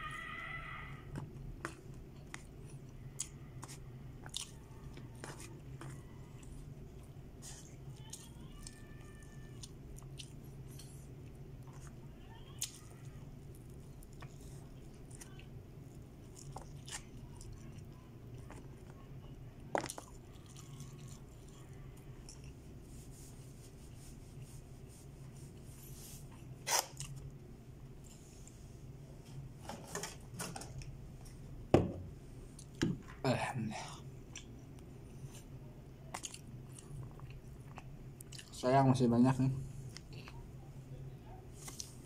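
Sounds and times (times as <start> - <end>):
steady low hum: 0.0 - 42.0
chewing: 1.1 - 22.7, 26.3 - 27.4, 34.3 - 35.4, 36.0 - 38.6, 39.8 - 40.5
eating from foil tray: 1.4 - 23.4.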